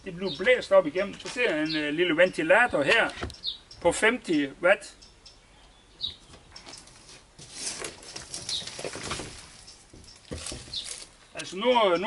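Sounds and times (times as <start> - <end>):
panel rustling and scraping: 6.7 - 11.2.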